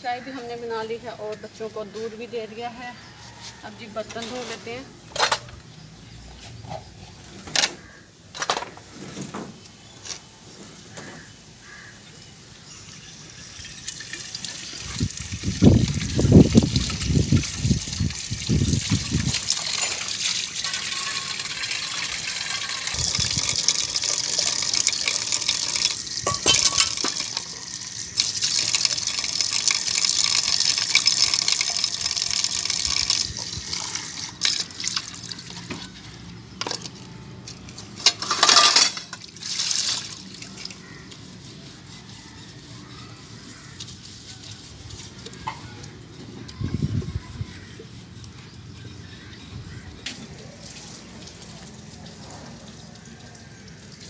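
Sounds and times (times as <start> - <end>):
tap water running into basin: 13.0 - 36.0, 38.0 - 41.2
steel dishes scrubbed and clinking: 19.0 - 27.7, 37.7 - 40.1.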